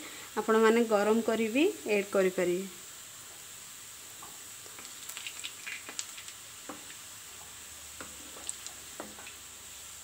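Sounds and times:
oil sizzling and popping: 2.8 - 10.0.

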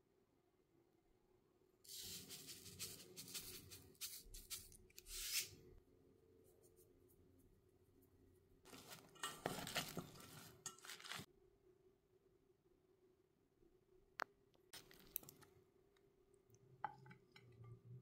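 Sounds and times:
seasoning shaker shaken: 1.9 - 5.5.

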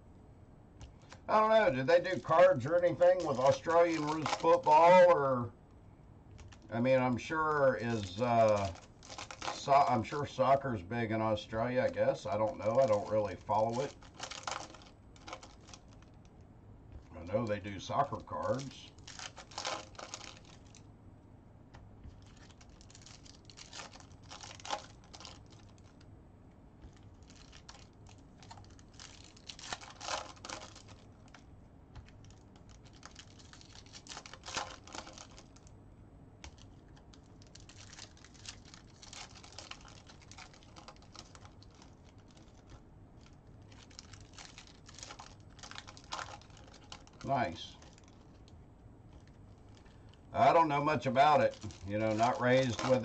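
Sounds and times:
foil wrapper crinkling and tearing: 0.9 - 5.4, 6.3 - 16.2, 17.1 - 20.9, 22.0 - 26.1, 26.8 - 35.7, 36.4 - 53.0.

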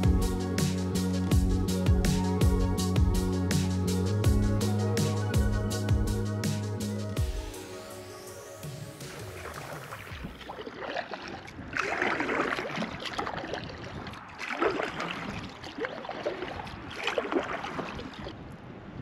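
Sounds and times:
water lapping: 8.8 - 18.4
paddle splashing into water: 9.0 - 18.4.

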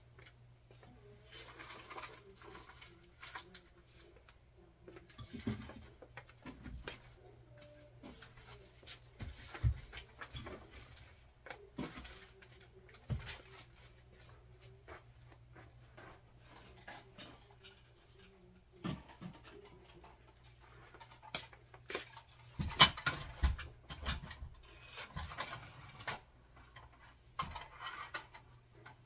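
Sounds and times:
plastic packages rustling: 1.3 - 3.7.

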